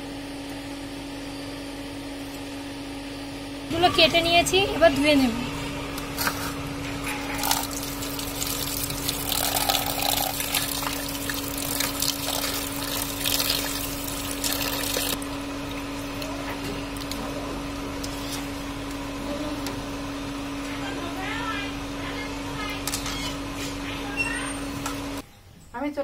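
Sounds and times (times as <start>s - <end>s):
steady low hum: 0.0s - 24.2s
running water splashing onto steel plate: 7.4s - 15.4s.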